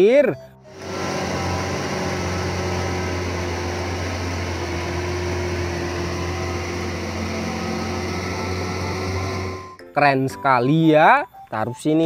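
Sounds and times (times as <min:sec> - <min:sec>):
diesel truck engine running: 0:00.6 - 0:09.8.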